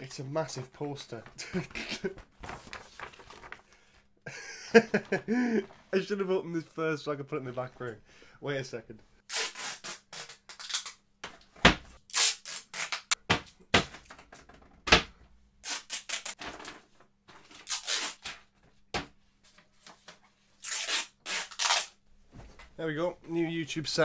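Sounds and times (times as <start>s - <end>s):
paper poster crinkling: 2.4s - 3.7s.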